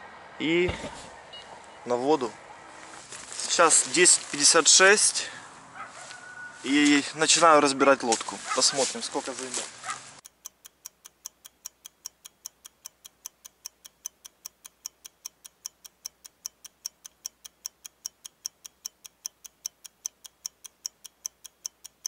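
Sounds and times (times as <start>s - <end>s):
clock ticking: 10.2s - 22.0s.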